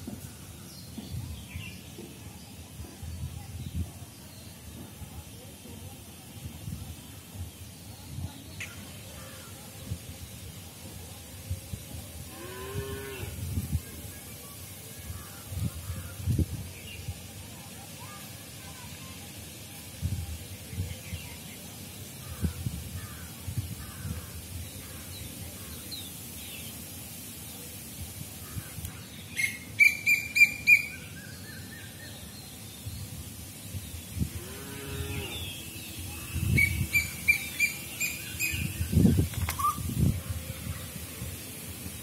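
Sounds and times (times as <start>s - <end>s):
outdoor background hiss: 0.0s - 42.0s
birds chirping: 28.4s - 40.2s.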